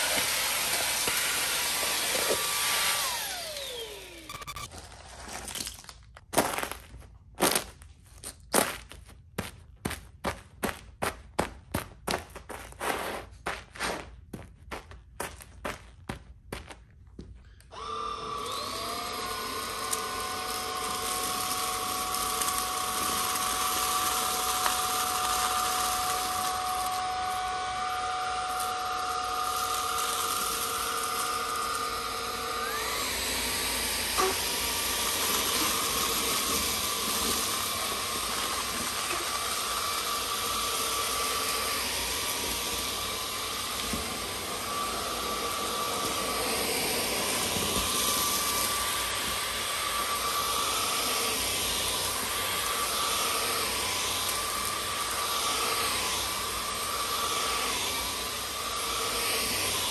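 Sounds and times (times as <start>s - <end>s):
air hissing through floor brush: 0.0s - 3.3s, 12.6s - 14.2s
stick vacuum whining: 0.0s - 6.3s, 17.4s - 59.9s.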